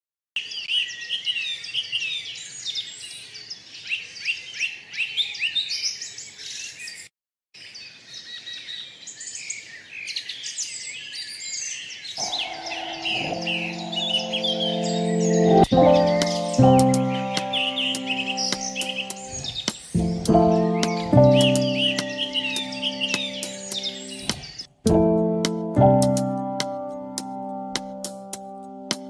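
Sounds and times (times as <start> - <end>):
small birds chirping: 0.4 - 24.8
music with sustained notes: 12.2 - 29.0.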